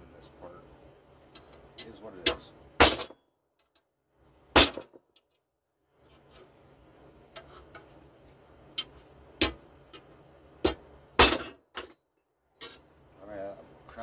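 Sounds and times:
hammer striking steel punch: 0:04.5 - 0:05.0, 0:09.4 - 0:09.6, 0:10.6 - 0:11.6.

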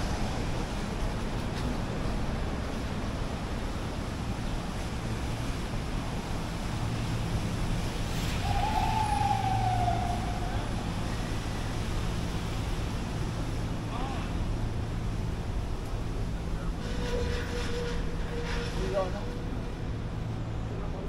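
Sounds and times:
city street traffic hum: 0:00.0 - 0:21.0
drawn-out falling tone: 0:08.4 - 0:11.7.

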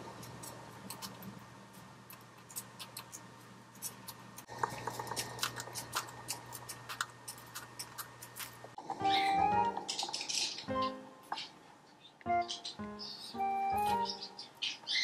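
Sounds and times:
faint steady hum: 0:00.0 - 0:15.0
birds cracking seed husks: 0:02.1 - 0:11.6.

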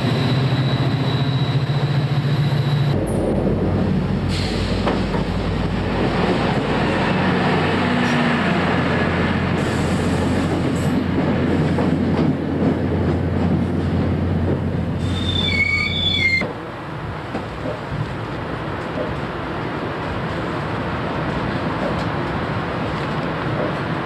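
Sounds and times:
high wheel and brake squeal: 0:00.0 - 0:02.9, 0:15.0 - 0:16.5
train coaches rumbling: 0:00.0 - 0:24.0.

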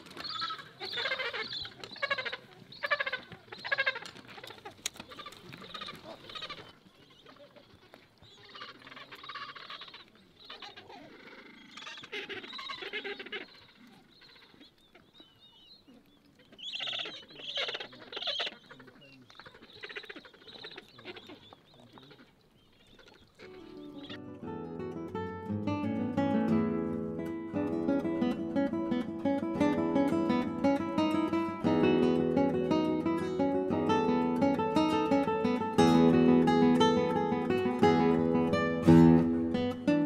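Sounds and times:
penguin colony calling: 0:00.0 - 0:24.2.

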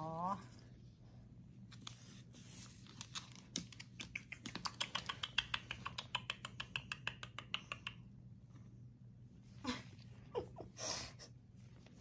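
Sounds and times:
parrot clicking and tapping: 0:03.5 - 0:08.0.

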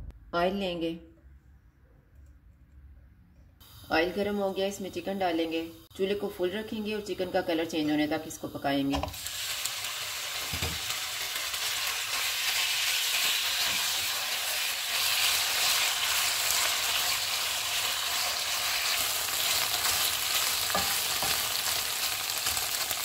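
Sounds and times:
chicken sizzling in hot oil: 0:06.7 - 0:23.0.

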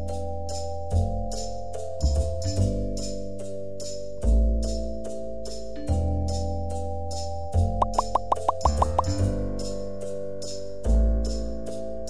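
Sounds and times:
synth notes: 0:07.8 - 0:09.1
steady percussive beat: 0:07.8 - 0:09.2
bass line: 0:07.8 - 0:09.5.

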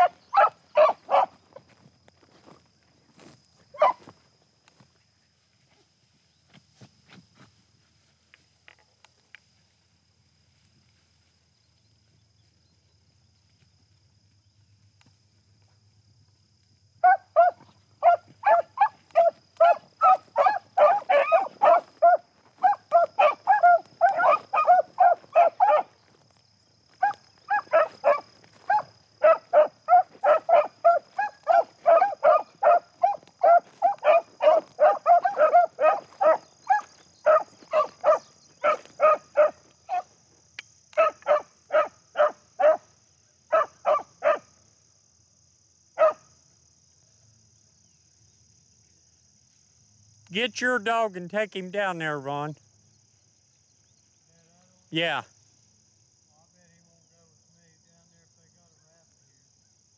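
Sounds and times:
dog barking rapidly: 0:00.0 - 0:01.4, 0:03.8 - 0:04.0, 0:17.0 - 0:25.9, 0:27.0 - 0:40.1, 0:41.0 - 0:42.8, 0:43.5 - 0:44.4, 0:46.0 - 0:46.2.

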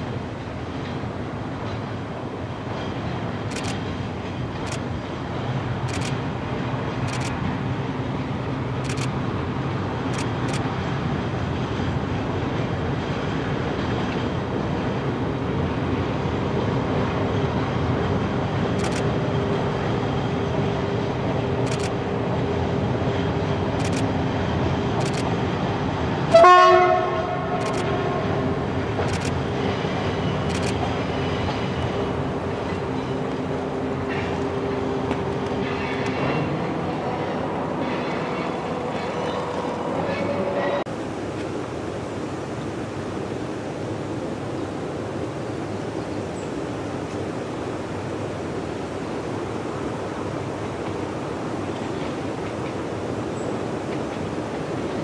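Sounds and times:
diesel train engines droning: 0:00.0 - 0:55.0
train horn blast: 0:26.3 - 0:28.4, 0:39.2 - 0:40.9.

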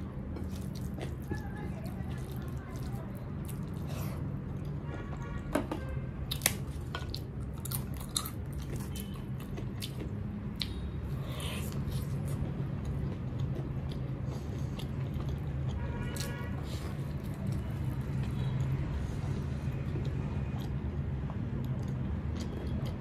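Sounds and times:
biting and chewing: 0:00.0 - 0:04.8, 0:06.3 - 0:23.0
wet squishing of food by hand: 0:00.0 - 0:05.5, 0:06.2 - 0:23.0.

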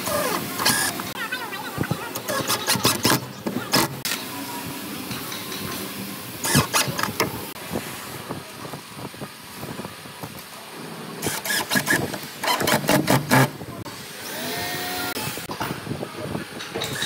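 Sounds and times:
steady background noise: 0:00.0 - 0:17.0
cordless driver driving screws: 0:06.4 - 0:07.2, 0:11.2 - 0:13.5.

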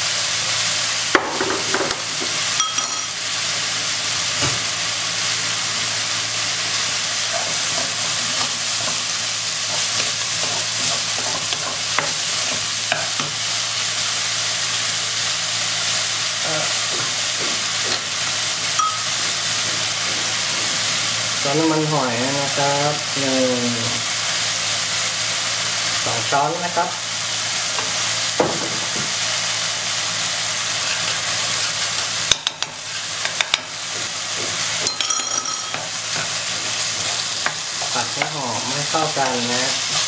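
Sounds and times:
meat and vegetables sizzling in wok: 0:00.0 - 0:40.0.

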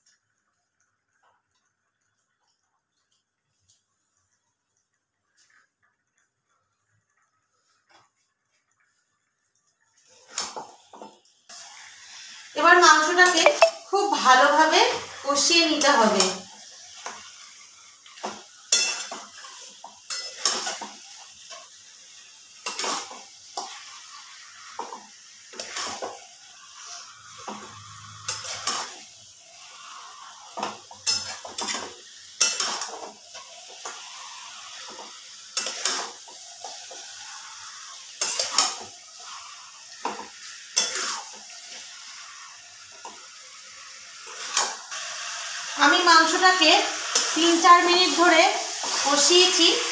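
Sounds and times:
frying sizzle: 0:00.0 - 0:49.9
spatula scraping metal pan: 0:26.8 - 0:29.0, 0:29.9 - 0:33.1, 0:38.2 - 0:41.4.

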